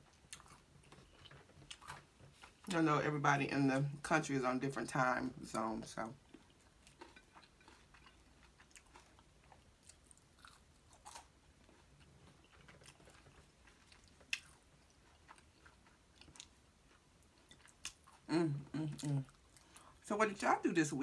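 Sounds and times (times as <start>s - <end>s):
chewing food: 0.0s - 2.7s, 6.0s - 20.0s.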